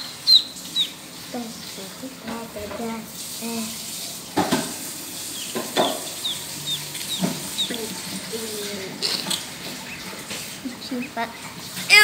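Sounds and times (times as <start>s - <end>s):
ducklings peeping: 0.0s - 1.1s, 5.2s - 11.5s
sharp knocks: 5.5s - 6.2s.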